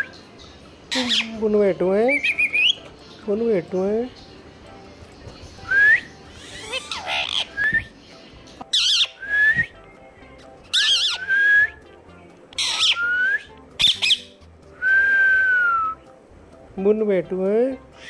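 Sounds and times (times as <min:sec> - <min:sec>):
parrot whistling and squawking: 0:00.9 - 0:01.4, 0:02.1 - 0:02.9, 0:05.6 - 0:08.0, 0:08.7 - 0:09.7, 0:10.7 - 0:11.8, 0:12.5 - 0:16.0.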